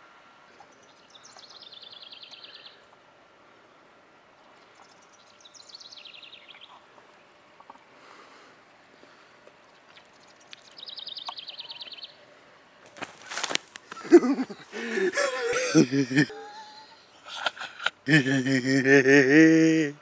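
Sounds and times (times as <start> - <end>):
songbirds trilling: 0.3 - 12.4, 13.4 - 20.0
loud rustling scuffle: 12.9 - 14.1.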